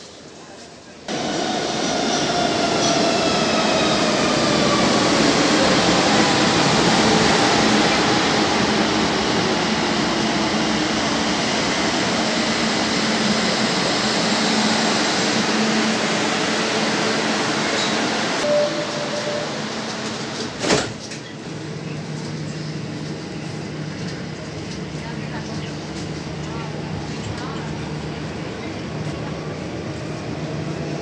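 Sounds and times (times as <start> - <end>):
train rumbling on rails: 1.1 - 31.0.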